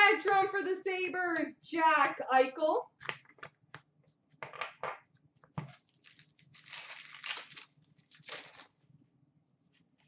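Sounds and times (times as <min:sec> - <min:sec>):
foil wrappers crinkling: 0:05.7 - 0:08.8.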